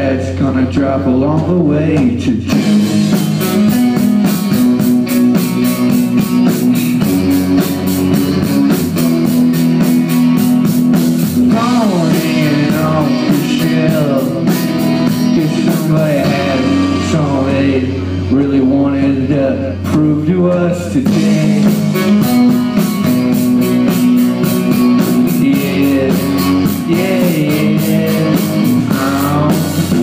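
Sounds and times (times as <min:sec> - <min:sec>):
rock band playing: 0:00.0 - 0:30.0
drum cymbal beat: 0:02.5 - 0:17.6, 0:21.1 - 0:30.0.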